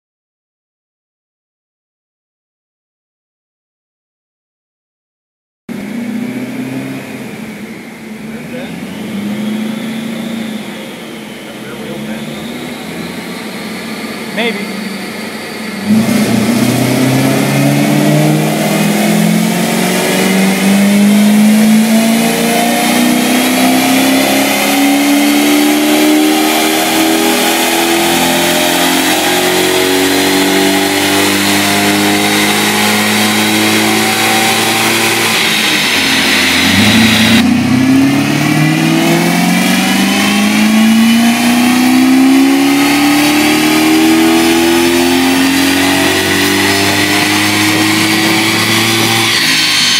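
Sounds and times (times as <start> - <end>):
car engine revving under load: 5.7 - 49.9.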